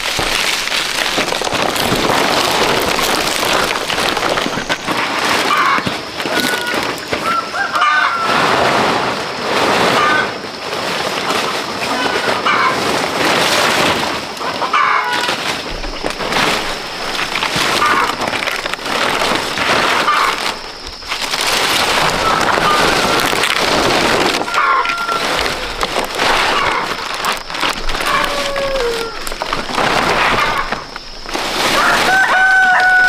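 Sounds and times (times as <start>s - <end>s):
palm leaves rustling and crackling: 0.0s - 33.0s
chickens clucking: 3.4s - 8.8s, 11.7s - 13.2s, 14.4s - 15.5s, 17.1s - 33.0s.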